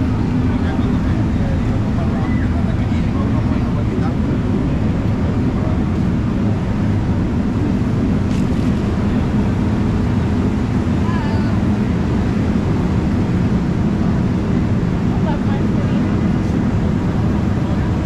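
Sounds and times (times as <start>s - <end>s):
crowd noise: 0.0s - 5.9s
traffic rumble: 0.0s - 18.0s.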